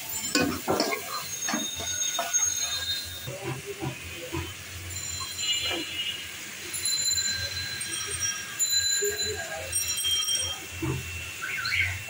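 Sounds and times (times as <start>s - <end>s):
masala sizzling in hot oil: 0.0s - 12.0s.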